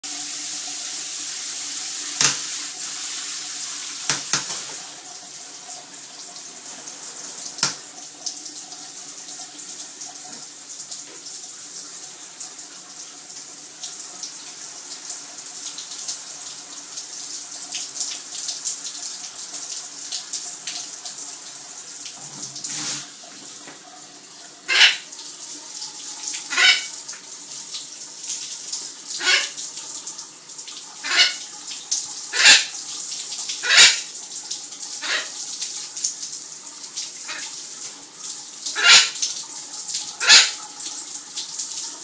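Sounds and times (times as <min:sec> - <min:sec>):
shower spray hissing: 0:00.3 - 0:05.1, 0:22.2 - 0:23.2, 0:35.0 - 0:36.2, 0:40.2 - 0:40.6.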